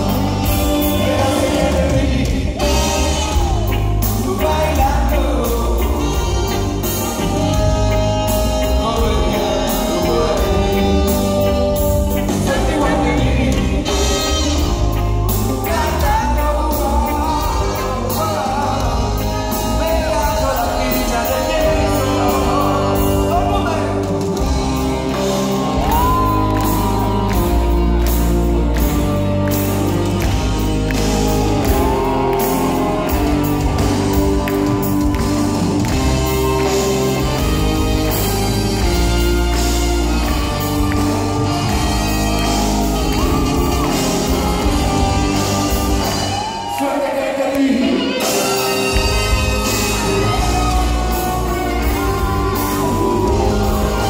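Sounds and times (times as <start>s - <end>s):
person singing: 0.0s - 28.3s
live reggae band playing: 0.0s - 54.0s
crowd shouting and whooping: 21.8s - 54.0s.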